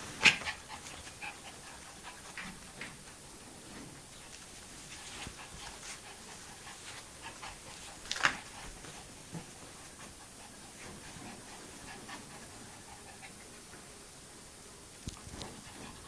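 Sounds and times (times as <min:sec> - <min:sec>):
dog panting and sniffing: 0:00.2 - 0:03.3, 0:04.1 - 0:13.8, 0:15.2 - 0:16.0.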